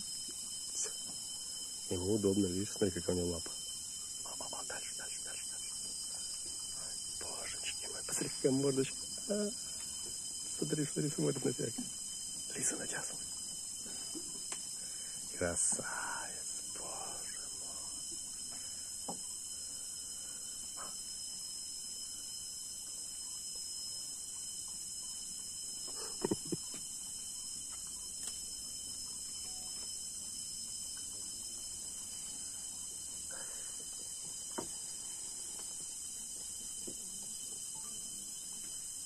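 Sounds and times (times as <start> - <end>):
high-pitched insect drone: 0.0 - 39.0.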